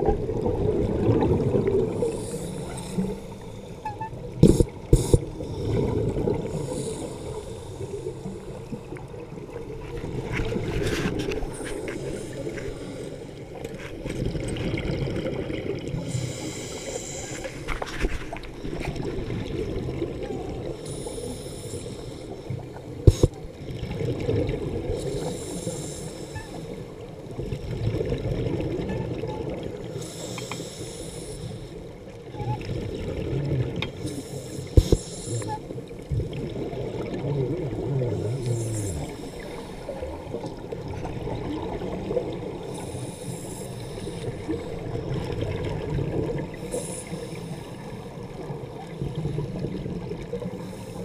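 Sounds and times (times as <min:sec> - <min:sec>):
scuba regulator exhaled bubbles: 0:00.0 - 0:21.9.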